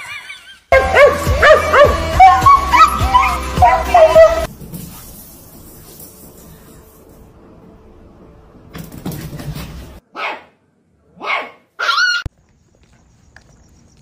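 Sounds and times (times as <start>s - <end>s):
dog barking: 0.8s - 2.8s, 10.1s - 12.2s.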